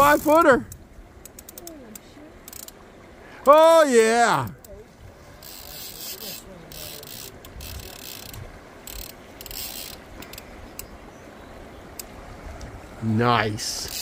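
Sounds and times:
fishing reel ratcheting: 0.0 - 2.8, 5.4 - 10.8, 13.8 - 14.0
river water washing: 0.0 - 14.0.

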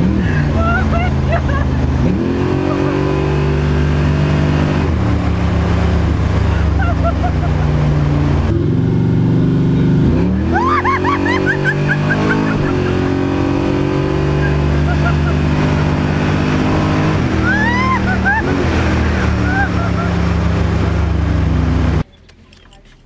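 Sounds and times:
drag car engine running: 0.0 - 22.0
woman laughing loudly: 0.2 - 3.1, 6.4 - 8.0, 10.4 - 13.4, 14.2 - 15.7, 17.3 - 20.5.

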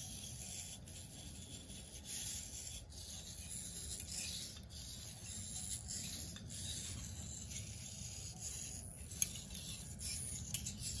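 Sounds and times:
servo motors whirring: 0.0 - 11.0.

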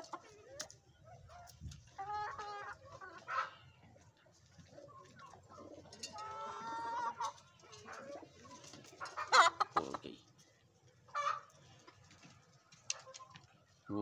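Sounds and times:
chickens calling: 0.0 - 14.0.

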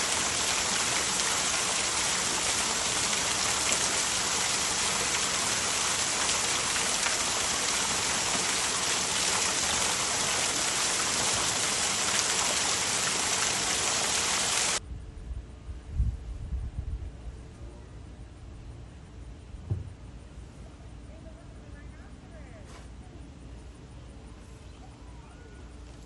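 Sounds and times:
falling splashing water: 0.0 - 14.8.

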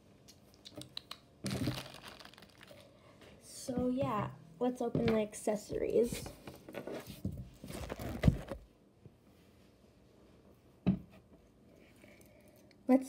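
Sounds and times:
knocks and rustles on tabletop: 10.8 - 11.3.

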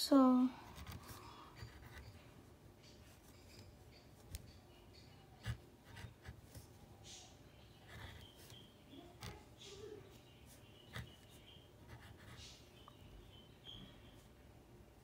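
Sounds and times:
marker scratching on paper: 0.7 - 2.2, 5.4 - 6.7, 7.8 - 12.7.

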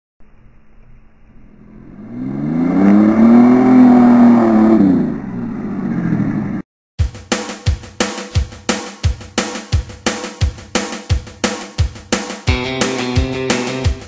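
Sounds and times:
engine revving hard: 1.5 - 6.6.

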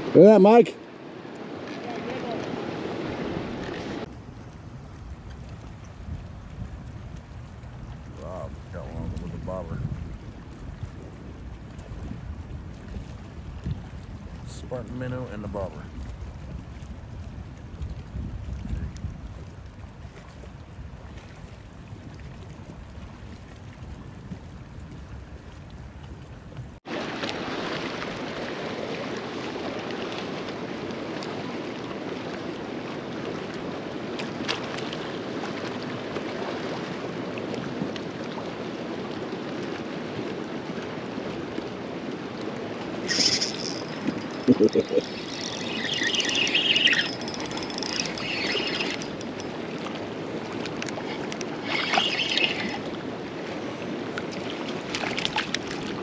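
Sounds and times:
small waves lapping: 0.0 - 56.0
wind noise on microphone: 2.9 - 15.0, 15.8 - 26.8
loud high-pitched sounds: 43.1 - 49.4.

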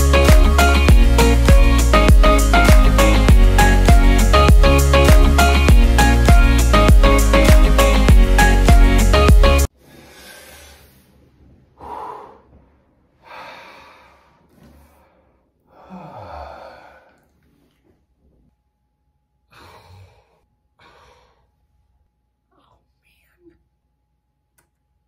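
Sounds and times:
background music: 0.0 - 9.7
man breathing heavily and sighing: 13.2 - 17.4, 19.5 - 21.5.

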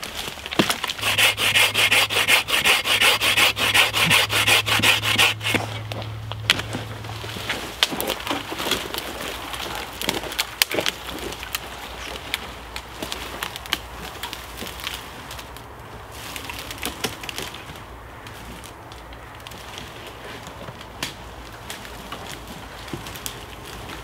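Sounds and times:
twigs cracking and snapping: 0.0 - 1.1, 5.4 - 24.0
undergrowth rustling: 0.0 - 24.0.

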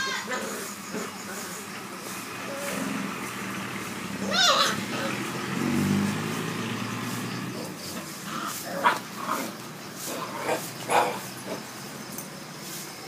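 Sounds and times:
puppy yipping: 4.2 - 4.8.

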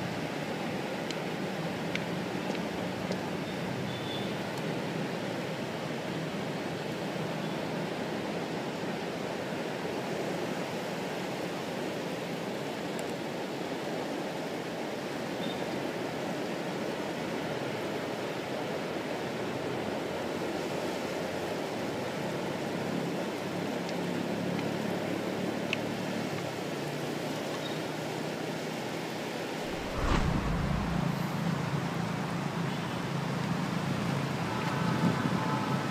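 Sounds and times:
low thump and rumble: 29.7 - 31.9.

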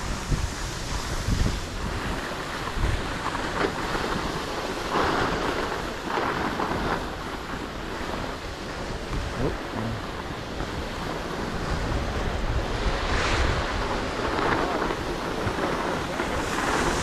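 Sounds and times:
skis scraping over snow: 0.0 - 17.0
wind buffeting microphone: 0.0 - 17.0.

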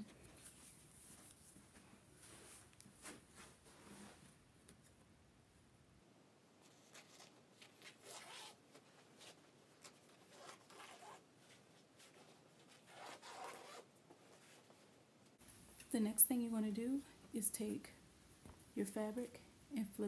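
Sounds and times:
cloth rustling on carpet: 0.1 - 4.4.

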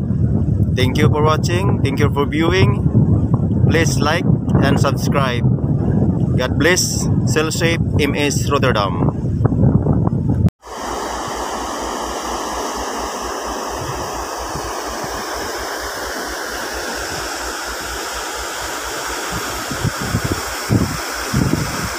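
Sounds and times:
wind buffeting microphone: 0.0 - 21.9
rush of churning water: 10.6 - 21.9.

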